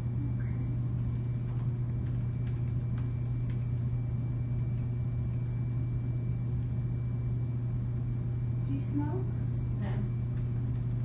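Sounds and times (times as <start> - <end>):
low hum: 0.0 - 11.0
laptop keyboard typing: 1.0 - 5.4, 10.2 - 11.0.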